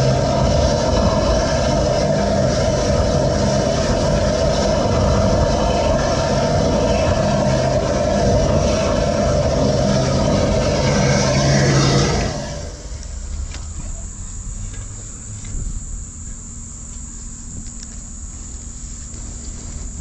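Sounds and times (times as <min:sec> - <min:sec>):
high-pressure water hiss: 0:00.0 - 0:13.3
drain jetter engine: 0:00.0 - 0:13.7.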